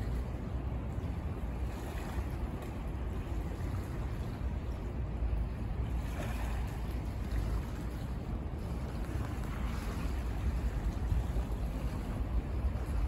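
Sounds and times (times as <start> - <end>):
harbourside ambience: 0.0 - 13.0
wind buffeting microphone: 0.0 - 13.0.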